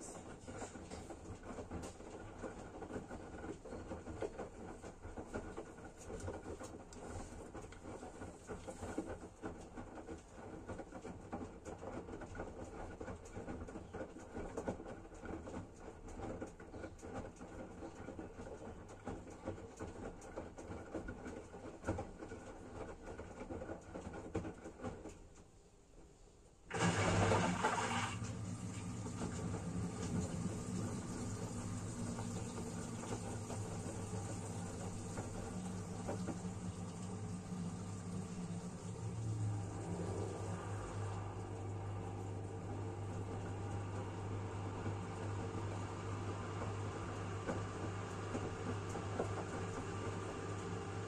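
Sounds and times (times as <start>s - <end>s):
soft knocks of tumbling laundry: 0.0s - 51.0s
washing machine drum motor humming: 26.7s - 51.0s.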